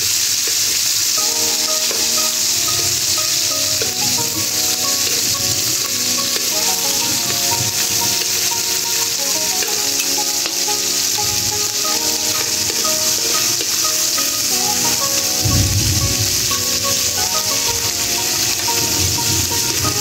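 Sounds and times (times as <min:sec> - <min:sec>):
shrimp sizzling in a wok: 0:00.0 - 0:20.0.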